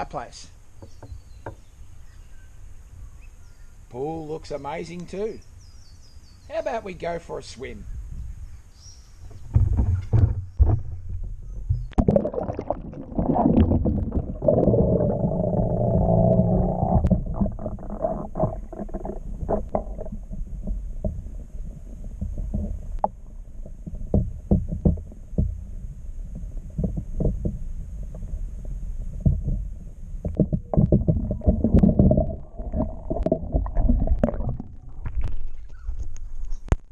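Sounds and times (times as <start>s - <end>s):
underwater water rumble: 9.2s - 36.9s
underwater knocks and clicks: 9.3s - 36.9s.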